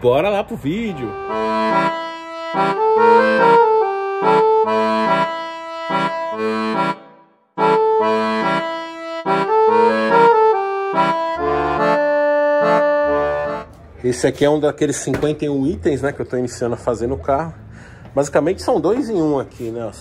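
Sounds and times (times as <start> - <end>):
instrumental jingle with rhythmic chords: 0.6 - 13.8.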